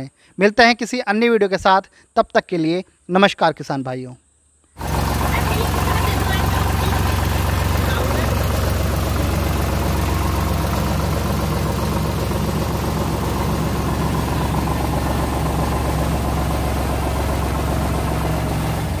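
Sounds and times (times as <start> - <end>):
tractor diesel engine idling: 4.8 - 19.0.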